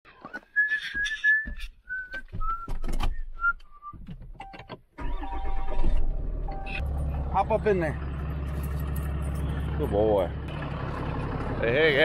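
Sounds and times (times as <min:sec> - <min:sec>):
person whistling short notes: 0:00.2 - 0:04.0
diesel engine starting: 0:05.0 - 0:12.0.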